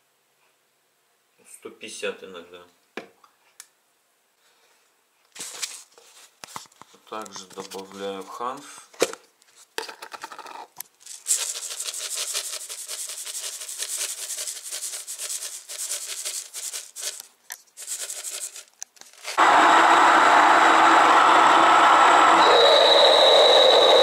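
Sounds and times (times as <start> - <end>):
seeds pouring with dry rustle: 11.0 - 19.4
electric grain mill grinding: 19.4 - 24.0.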